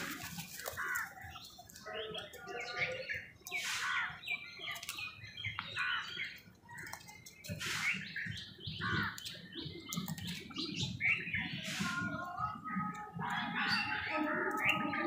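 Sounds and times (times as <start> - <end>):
birds chirping: 0.0 - 15.0
crows cawing: 0.6 - 1.3, 8.8 - 9.2.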